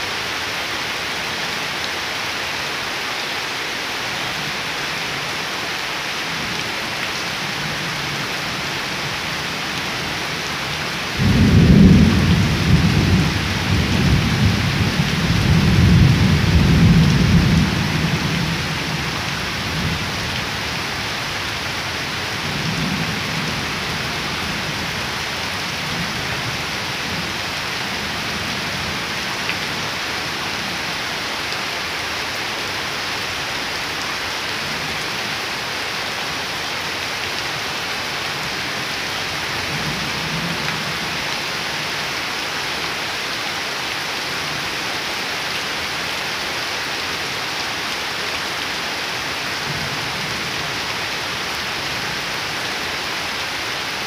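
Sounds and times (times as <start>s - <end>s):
heavy rain falling on leaves: 0.0s - 54.0s
low rumble of thunder: 11.2s - 19.0s.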